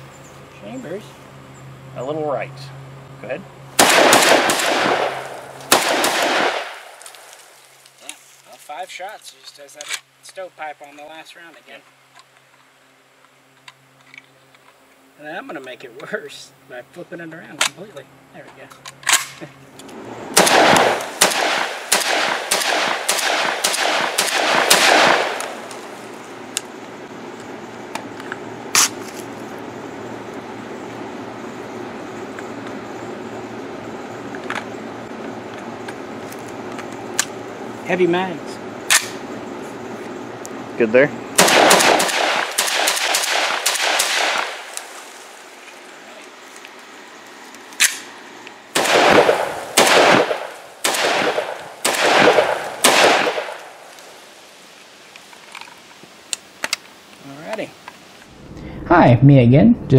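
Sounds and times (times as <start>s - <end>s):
shotgun shots with echo: 3.8s - 7.0s, 20.4s - 25.7s, 41.4s - 44.7s, 48.8s - 53.6s.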